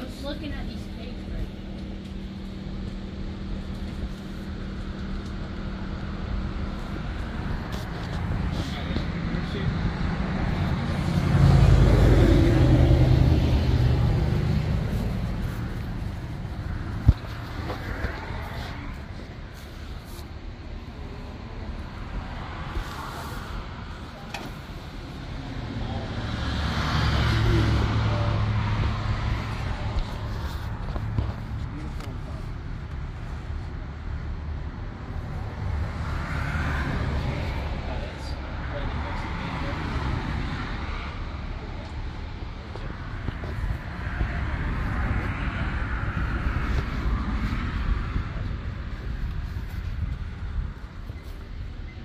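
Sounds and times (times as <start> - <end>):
low rumbling: 0.0 - 52.0
vehicle passing by: 5.8 - 33.5, 35.0 - 51.7.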